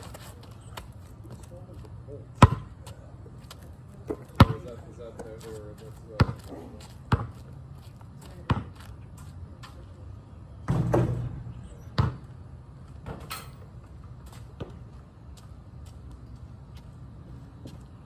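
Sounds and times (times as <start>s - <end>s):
basketball bouncing on asphalt: 2.3s - 9.7s, 10.6s - 13.3s, 14.2s - 16.1s.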